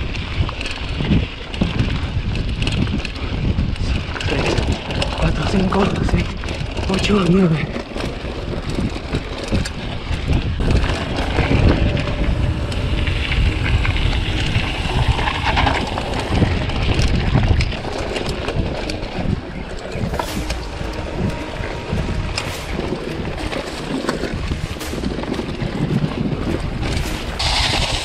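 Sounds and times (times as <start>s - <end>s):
bike rattling over stones: 0.0s - 28.0s
bike tyres on gravel: 0.0s - 28.0s
wind buffeting microphone: 0.0s - 28.0s.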